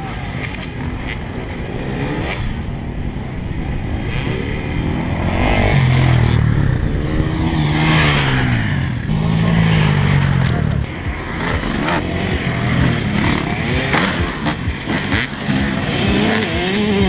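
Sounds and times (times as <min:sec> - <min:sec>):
dirt bike engine revving: 0:00.0 - 0:17.0
dirt bike engines racing: 0:00.0 - 0:17.0.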